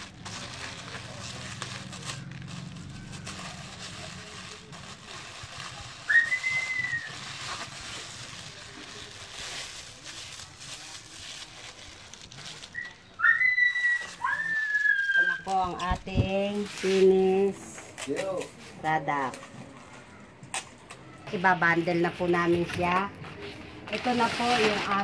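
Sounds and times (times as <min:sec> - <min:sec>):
person whistling: 0:06.1 - 0:07.1.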